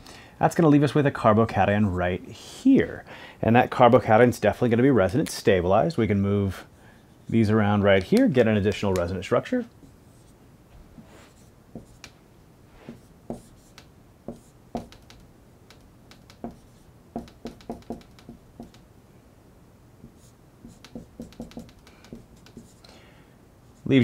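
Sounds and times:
marker writing on whiteboard: 9.8s - 10.4s, 11.0s - 12.2s, 12.8s - 18.8s, 20.0s - 22.8s.

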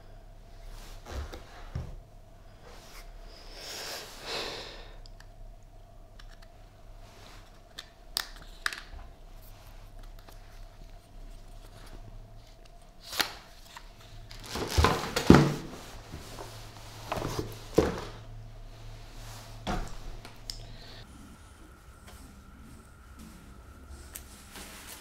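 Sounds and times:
faint hum: 0.0s - 25.0s
packaging rustle: 10.0s - 15.6s.

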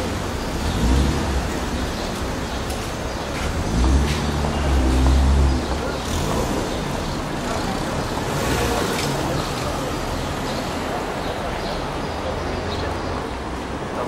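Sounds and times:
car engines running: 0.0s - 14.0s
road noise: 0.0s - 14.0s.

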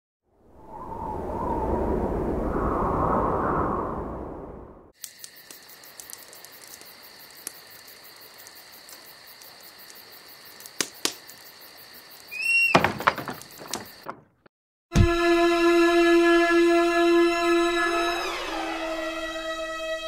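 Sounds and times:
sharp clicks: 5.0s - 7.6s
crickets chirping: 5.0s - 14.4s
lid creaking: 12.4s - 14.3s.

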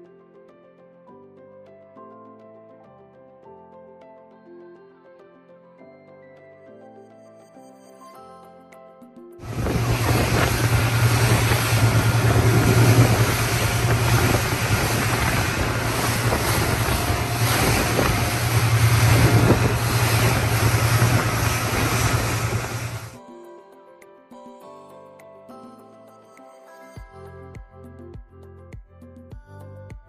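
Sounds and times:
speedboat engine drone: 9.4s - 23.2s
spray and churning water: 9.4s - 23.2s
wind buffeting microphone: 9.4s - 23.2s.

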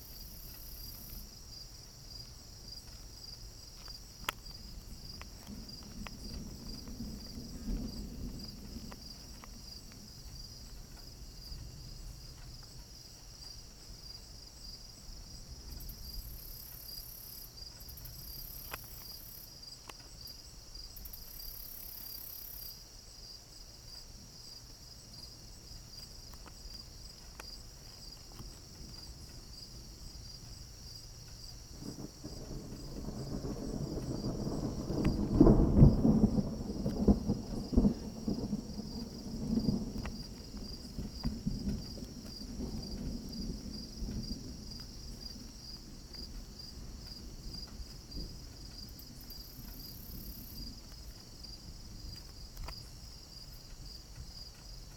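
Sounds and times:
low thunder rumbling: 0.0s - 16.6s, 25.6s - 52.7s
crickets chirping: 0.0s - 54.9s.

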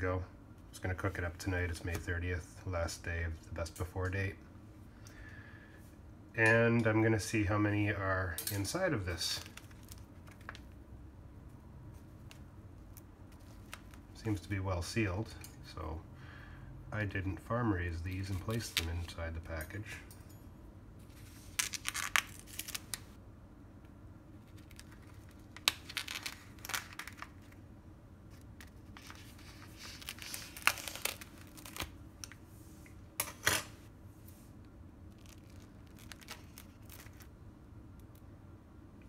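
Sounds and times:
plastic wrap crackling: 9.2s - 10.8s, 21.4s - 23.2s, 24.4s - 27.6s, 28.4s - 32.4s, 35.1s - 37.4s.

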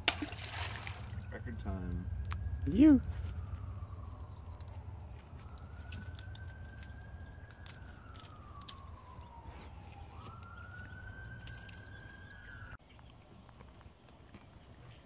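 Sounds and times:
faint siren wailing: 0.6s - 12.8s.

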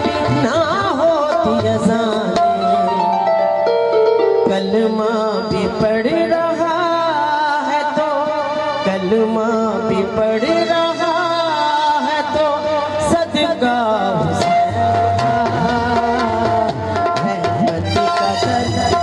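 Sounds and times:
woman singing: 0.0s - 3.3s, 4.4s - 19.0s
harmonium held notes: 0.0s - 19.0s
tabla strokes: 14.2s - 19.0s.

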